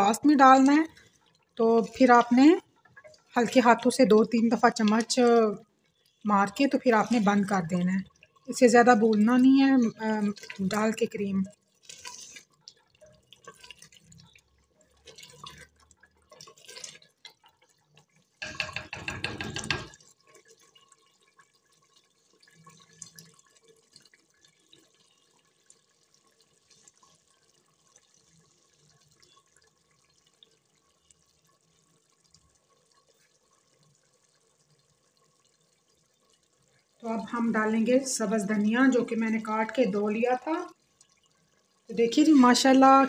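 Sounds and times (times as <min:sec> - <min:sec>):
curry bubbling in a pot: 0:00.0 - 0:43.0
spoon stirring: 0:00.1 - 0:14.4, 0:18.4 - 0:20.1.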